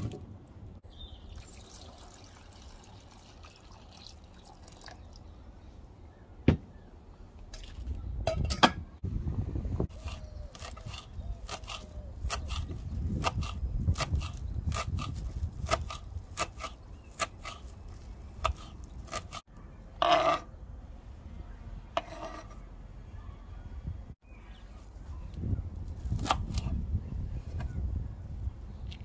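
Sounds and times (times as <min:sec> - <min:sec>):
knife scraping board: 0:20.0 - 0:20.5, 0:22.0 - 0:22.6.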